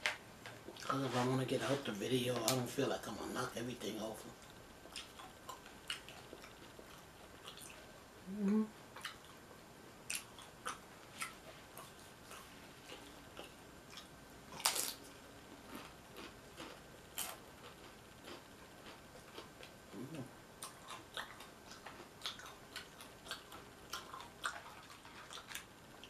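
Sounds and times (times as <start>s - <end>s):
chewing crunchy chips: 4.8s - 7.9s, 10.0s - 26.0s.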